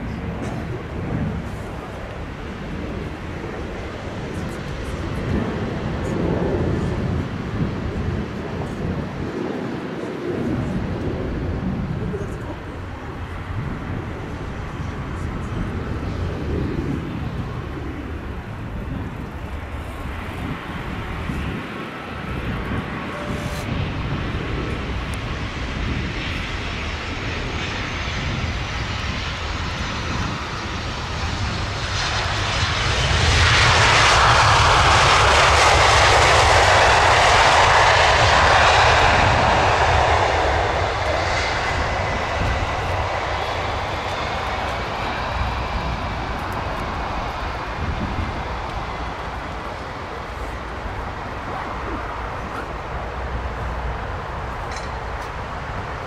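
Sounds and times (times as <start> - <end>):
jet approach whine: 0.0 - 56.0
jet reverse thrust roar: 19.2 - 56.0.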